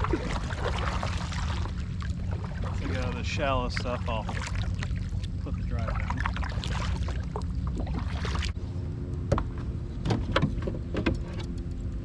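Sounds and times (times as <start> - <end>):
paddle blades splashing water: 0.0 - 8.6
steady low hum: 0.0 - 12.0.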